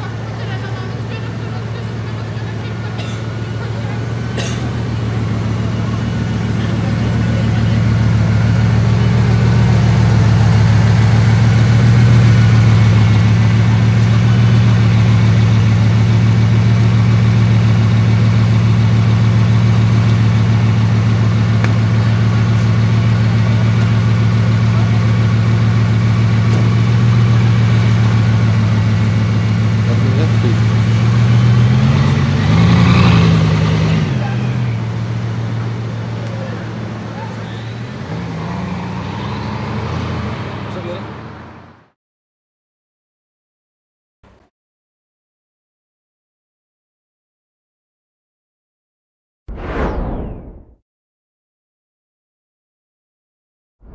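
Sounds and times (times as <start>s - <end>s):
car engine idling: 0.0s - 32.6s, 33.4s - 38.2s.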